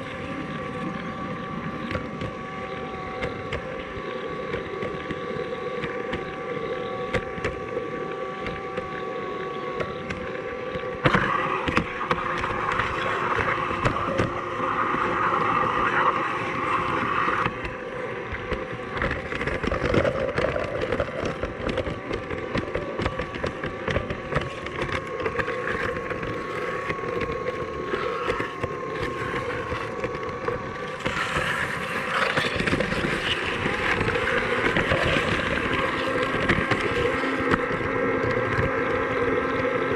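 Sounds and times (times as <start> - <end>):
model tram motor whine: 0.0 - 39.9
wheels clicking and rattling on rails: 11.0 - 39.9.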